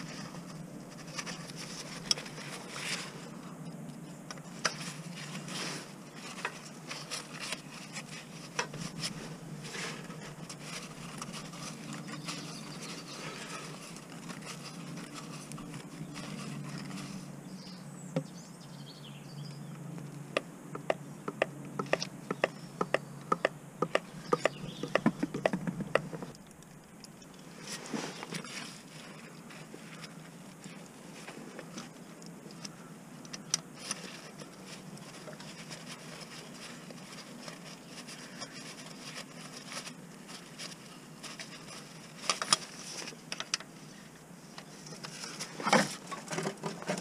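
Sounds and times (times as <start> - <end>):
low steady hum: 0.0 - 47.0
tool scraping and tapping: 20.4 - 26.4.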